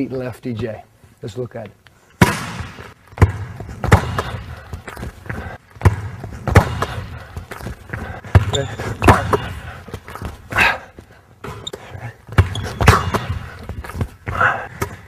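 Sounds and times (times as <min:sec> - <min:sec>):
basketball bouncing on wood floor: 0:02.2 - 0:10.4, 0:12.3 - 0:15.0
sneakers squeaking on court: 0:02.5 - 0:10.5, 0:11.4 - 0:15.0.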